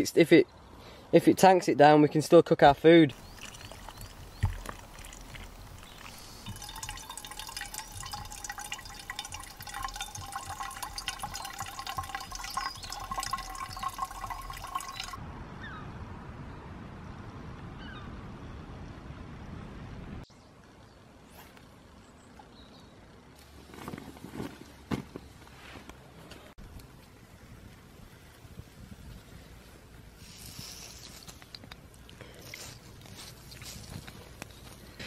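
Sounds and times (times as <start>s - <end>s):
water pouring and trickling: 3.1s - 15.2s, 30.1s - 34.8s.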